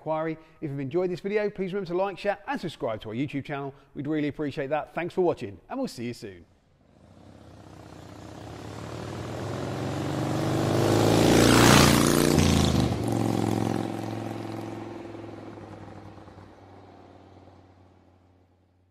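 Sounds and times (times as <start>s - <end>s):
engine-like pass-by whoosh: 6.9s - 16.5s.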